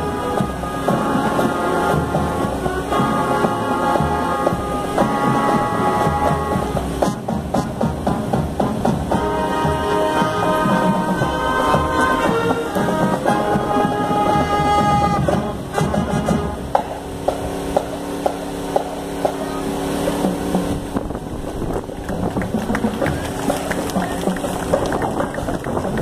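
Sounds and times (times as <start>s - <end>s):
brass band holding chord: 0.0s - 17.0s.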